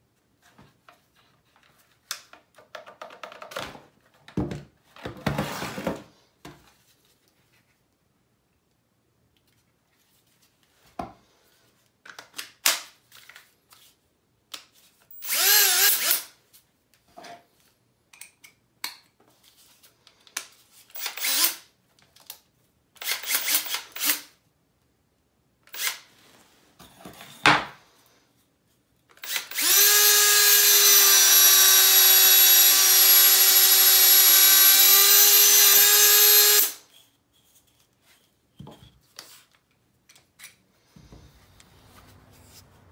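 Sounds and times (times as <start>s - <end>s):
drill boring through wood: 15.2s - 16.3s, 21.0s - 21.6s, 29.2s - 36.8s.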